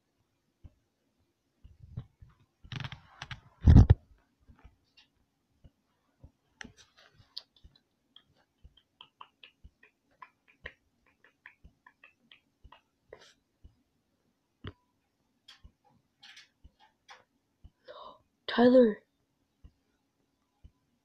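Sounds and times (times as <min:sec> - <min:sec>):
faint steady low hum: 0:00.0 - 0:21.0
faint small clicks and taps: 0:01.6 - 0:13.8, 0:14.6 - 0:17.8.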